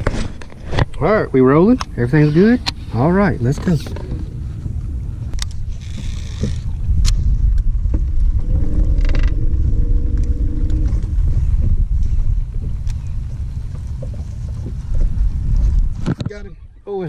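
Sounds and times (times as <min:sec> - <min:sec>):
wind rumbling on microphone: 0:00.0 - 0:17.0
steady humming tone: 0:04.0 - 0:15.5
fishing reel whirring: 0:05.6 - 0:06.8.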